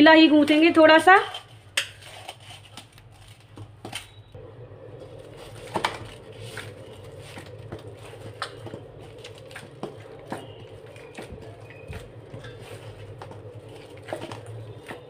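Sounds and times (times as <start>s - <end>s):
steady low hum: 4.2s - 15.0s
hands kneading dough: 5.0s - 15.0s.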